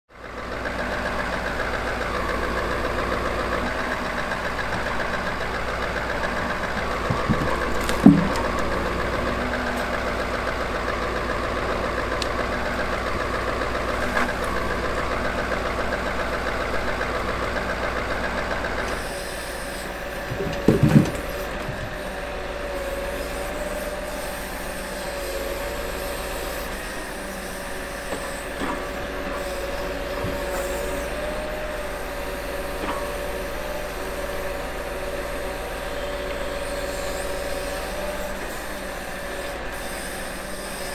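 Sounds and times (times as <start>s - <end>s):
diesel truck engine running: 0.1s - 40.9s
short knocks: 6.9s - 8.8s, 20.2s - 22.0s.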